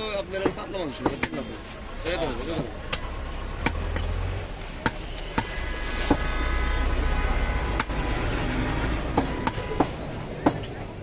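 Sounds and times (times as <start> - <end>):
cleaver chopping on wood block: 0.4 - 1.4, 7.8 - 8.0, 9.1 - 10.7.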